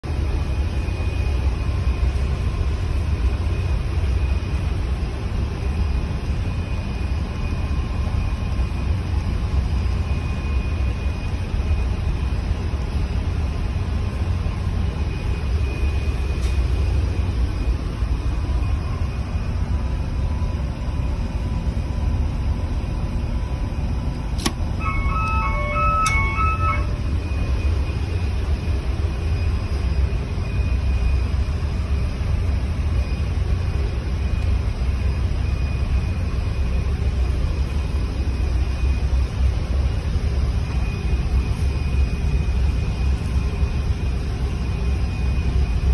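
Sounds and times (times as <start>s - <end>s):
diesel engine drone: 0.0s - 45.9s
electronic alarm beeps: 24.2s - 45.9s.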